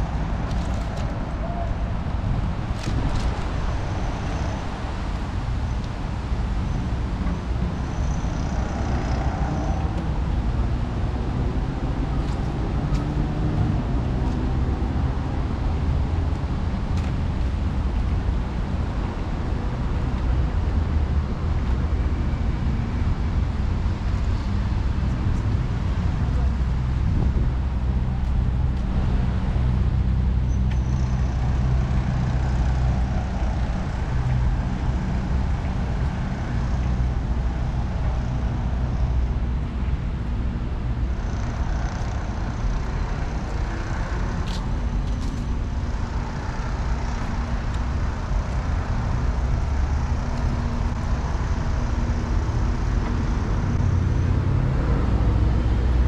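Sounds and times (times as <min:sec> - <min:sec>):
traffic rumble: 0:00.0 - 0:56.0.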